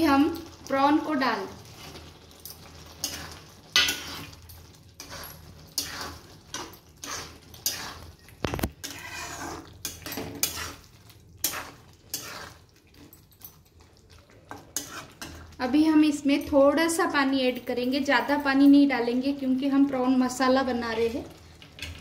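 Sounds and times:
spatula scraping a pan: 0:01.6 - 0:13.2, 0:14.5 - 0:15.6.

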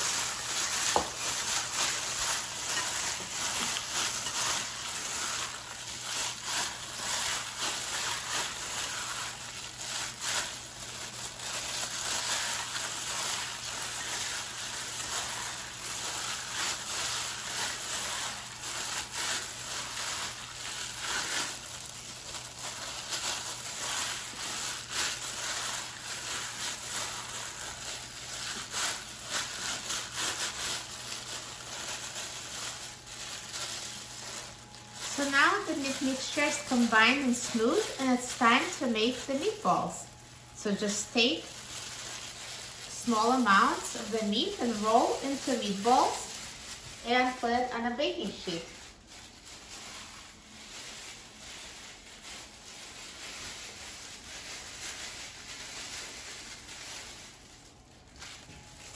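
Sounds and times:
wet squishing of meat: 0:00.0 - 0:35.5, 0:41.5 - 0:42.9
plastic gloves crinkling: 0:00.0 - 0:58.9.

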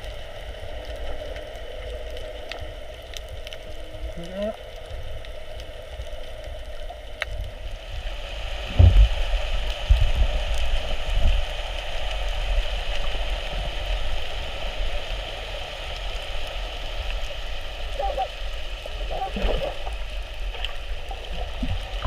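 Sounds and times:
underwater crackling hiss: 0:00.0 - 0:22.0
water thumping against camera housing: 0:08.7 - 0:09.1.

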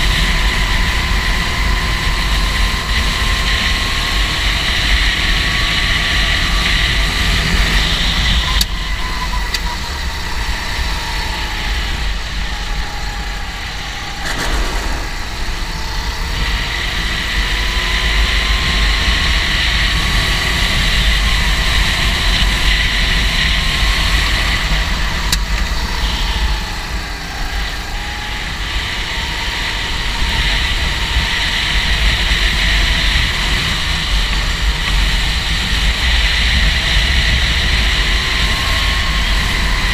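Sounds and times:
go-kart engine racing: 0:00.0 - 0:39.9.

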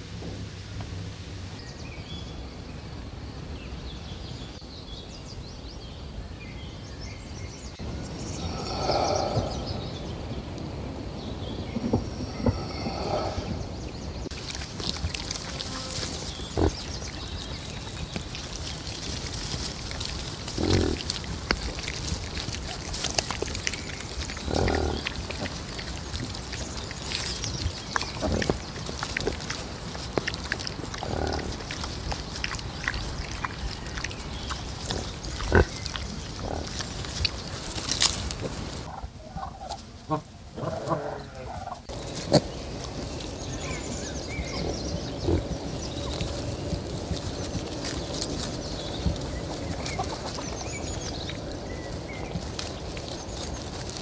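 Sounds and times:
snouts rustling in dirt: 0:07.8 - 0:54.0
pigs grunting: 0:08.1 - 0:10.2, 0:11.7 - 0:51.8.

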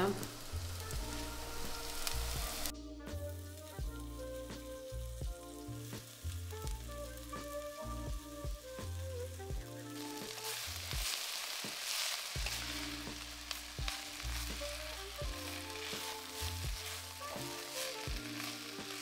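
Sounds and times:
wooden spatula stirring: 0:00.0 - 0:02.7, 0:09.9 - 0:19.0
background music with beat: 0:00.0 - 0:19.0
leaves sizzling in hot oil: 0:00.0 - 0:19.0.

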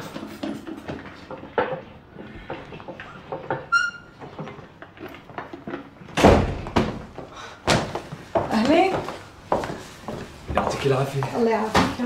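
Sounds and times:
brief high squeak: 0:03.7 - 0:04.2
loud thump: 0:06.2 - 0:07.1.

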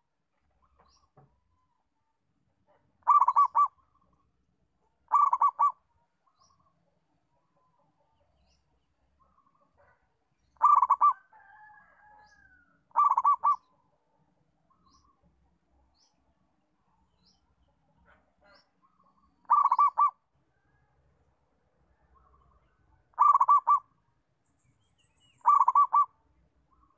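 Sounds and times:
dove cooing staccato: 0:02.7 - 0:03.8, 0:05.1 - 0:05.8, 0:10.6 - 0:11.3, 0:12.9 - 0:13.6, 0:19.4 - 0:20.2, 0:23.1 - 0:23.9, 0:25.4 - 0:26.2.

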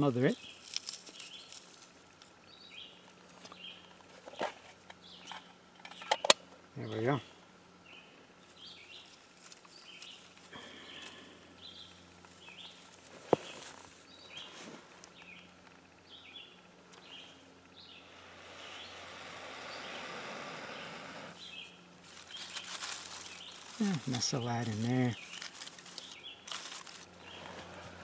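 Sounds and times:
small birds chirping: 0:00.0 - 0:28.0
blowing into tinder: 0:18.1 - 0:21.4.

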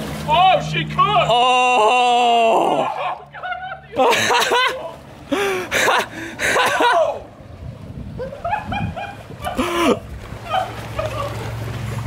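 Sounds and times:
people whooping and yelling: 0:01.2 - 0:05.0, 0:06.6 - 0:07.3, 0:10.4 - 0:11.4
people laughing: 0:01.8 - 0:07.2, 0:08.2 - 0:11.5.

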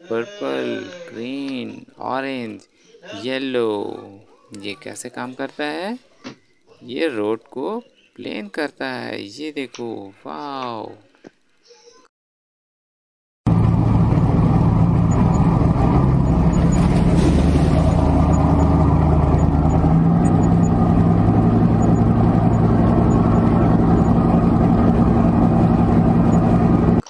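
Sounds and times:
road roller diesel engines running: 0:13.5 - 0:27.0.

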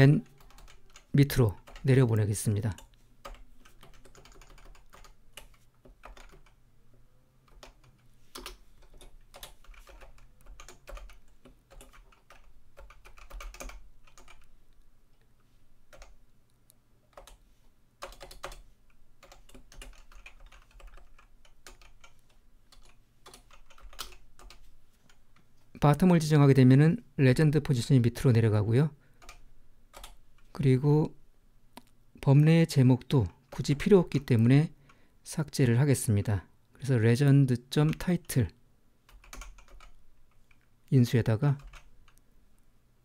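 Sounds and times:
typing on computer keyboard: 0:00.2 - 0:02.0, 0:02.7 - 0:06.6, 0:07.5 - 0:14.5, 0:15.9 - 0:16.2, 0:17.1 - 0:17.4, 0:18.0 - 0:18.6, 0:19.2 - 0:25.2, 0:29.2 - 0:30.5, 0:39.1 - 0:40.6, 0:41.6 - 0:42.2.

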